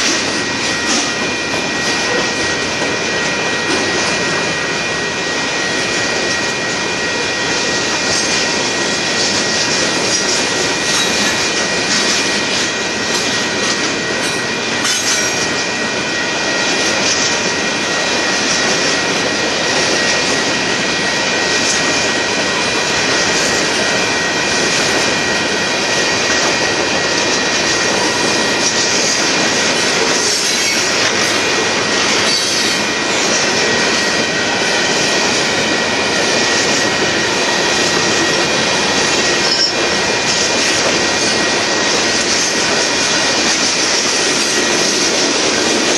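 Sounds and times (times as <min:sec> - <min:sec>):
freight train wheels rumbling: 0:00.0 - 0:45.9
high-pitched wheel squeal: 0:32.2 - 0:32.8, 0:39.4 - 0:39.8.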